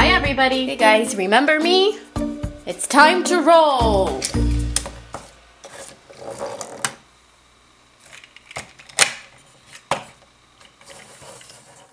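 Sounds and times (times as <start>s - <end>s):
plastic toy rustling: 5.6s - 6.9s, 10.6s - 11.9s.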